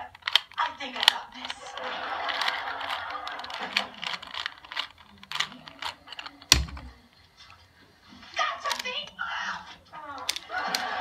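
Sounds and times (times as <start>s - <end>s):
puzzle cube plastic clicking: 0.0s - 7.1s, 8.6s - 9.0s, 10.2s - 10.9s.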